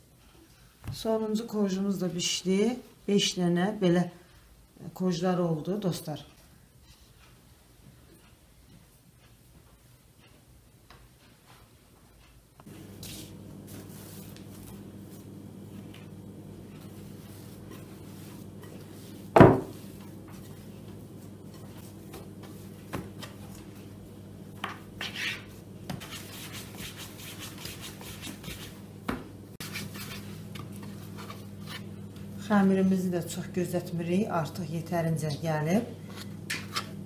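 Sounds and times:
hands kneading dough: 0:09.0 - 0:32.8
steady low hum: 0:12.4 - 0:37.0.

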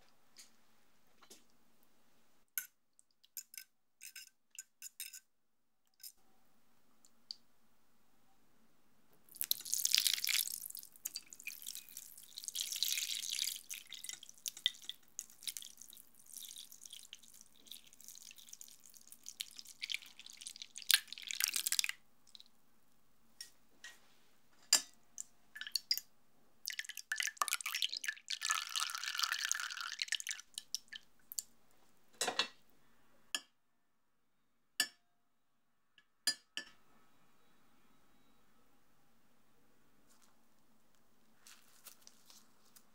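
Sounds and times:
metal spoon clinking on glass: 0:03.4 - 0:05.3
liquid pouring and splashing: 0:09.3 - 0:22.5, 0:26.6 - 0:31.1.

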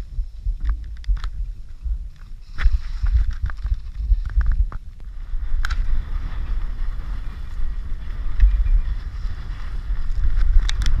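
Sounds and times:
wind buffeting microphone: 0:00.0 - 0:11.0
skis sliding on snow: 0:02.4 - 0:04.2, 0:05.1 - 0:11.0.

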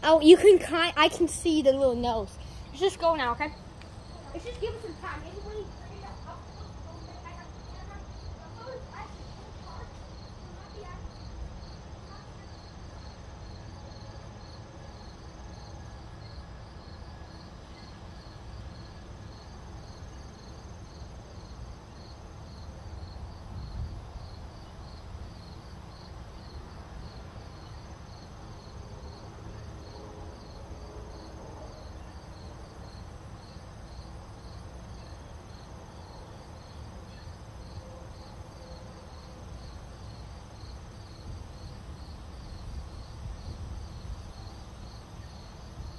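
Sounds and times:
cricket chirping: 0:01.8 - 0:45.9.

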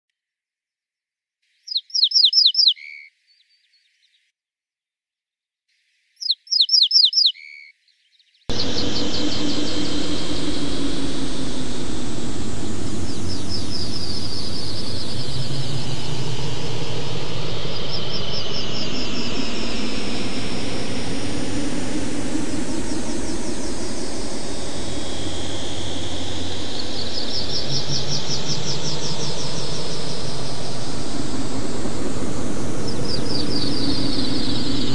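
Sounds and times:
bird singing high notes: 0:01.7 - 0:03.1, 0:06.2 - 0:07.7
synthesized noise with sliding tones: 0:08.5 - 0:34.9.

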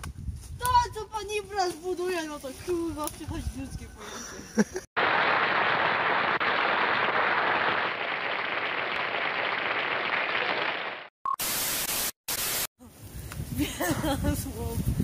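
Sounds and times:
audience applause: 0:05.0 - 0:11.1.

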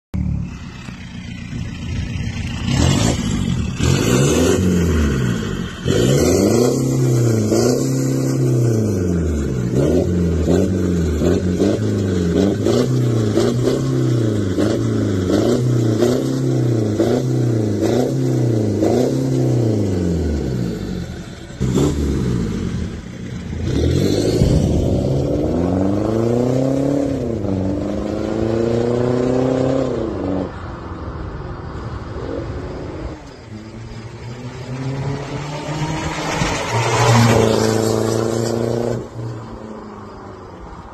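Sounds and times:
diesel engine revving: 0:00.2 - 0:30.6, 0:32.0 - 0:40.2
car accelerating hard: 0:02.4 - 0:30.6, 0:32.2 - 0:39.6.

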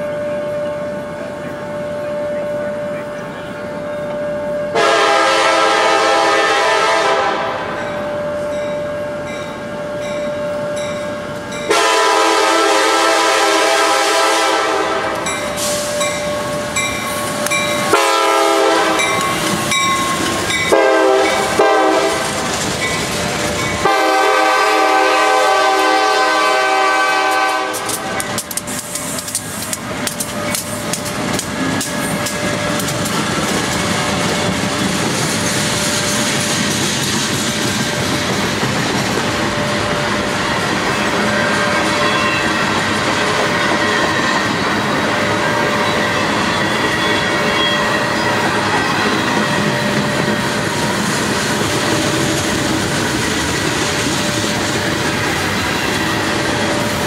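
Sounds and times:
freight train passing: 0:00.0 - 0:57.0
train air horn blasts: 0:04.7 - 0:07.8, 0:11.7 - 0:16.1, 0:17.9 - 0:19.3, 0:20.7 - 0:22.5, 0:23.8 - 0:28.5
train wheels clicking over rail joints: 0:14.9 - 0:24.2, 0:27.2 - 0:57.0.

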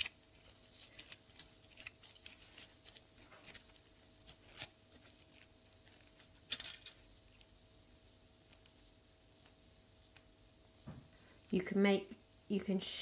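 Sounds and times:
kitchen foil crinkling: 0:00.0 - 0:07.6.

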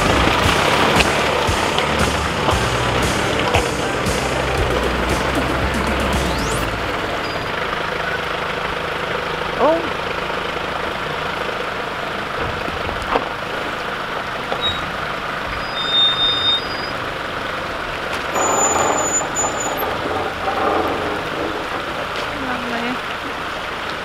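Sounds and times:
off-road vehicle engine running: 0:00.0 - 0:24.0
water splashing around tyres: 0:00.0 - 0:24.0
brief high squeaks: 0:14.6 - 0:17.0, 0:18.4 - 0:19.9.

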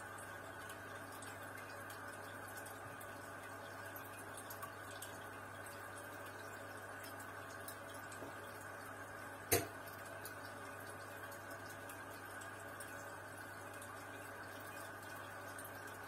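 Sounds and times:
air bubbling in aquarium filter: 0:07.8 - 0:10.3.

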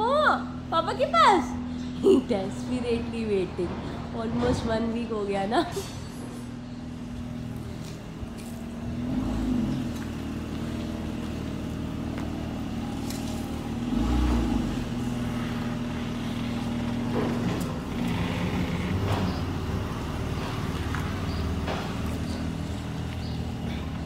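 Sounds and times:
car engine running at low speed: 0:06.3 - 0:24.0.

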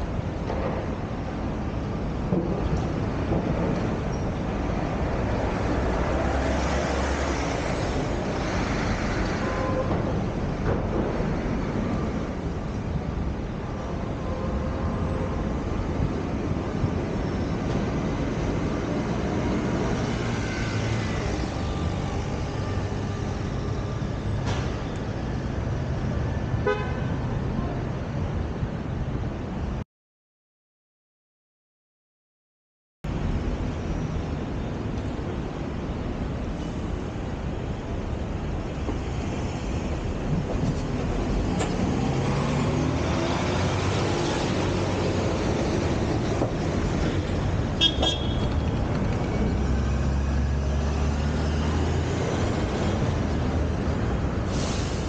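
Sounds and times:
city traffic noise: 0:00.0 - 0:29.8, 0:33.0 - 0:55.0
heavy vehicle engine hum: 0:00.0 - 0:29.8, 0:33.1 - 0:55.0
road noise: 0:00.0 - 0:29.8, 0:33.0 - 0:55.0
car horn beep: 0:26.6 - 0:27.0, 0:47.8 - 0:48.6
vehicle engines running: 0:33.2 - 0:55.0.

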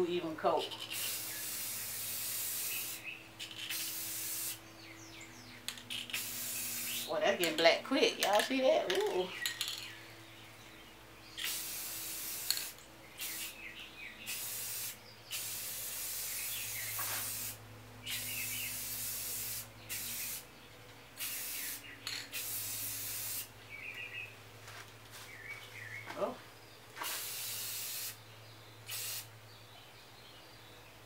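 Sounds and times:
spray paint can hissing: 0:00.7 - 0:04.6, 0:05.7 - 0:07.6, 0:11.4 - 0:13.6, 0:14.2 - 0:20.5, 0:21.2 - 0:23.5, 0:27.0 - 0:28.2, 0:28.9 - 0:29.3.

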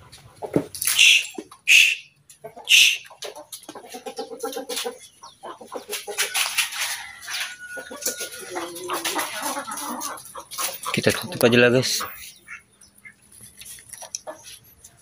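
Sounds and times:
chickens clucking: 0:00.0 - 0:15.0
chicken squawk: 0:00.8 - 0:11.1
rustling and clicks: 0:13.3 - 0:15.0.

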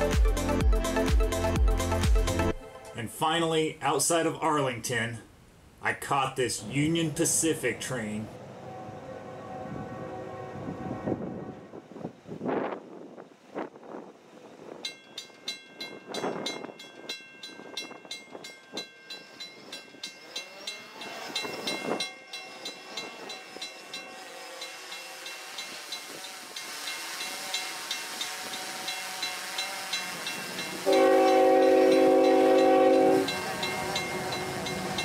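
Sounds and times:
diesel freight train approaching: 0:06.4 - 0:35.0
crossing warning bell ringing: 0:14.8 - 0:35.0.

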